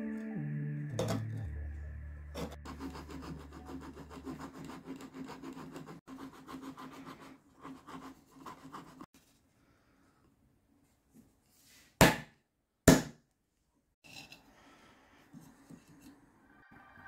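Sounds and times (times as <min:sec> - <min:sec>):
metal rasp filing wood: 0:02.4 - 0:09.1.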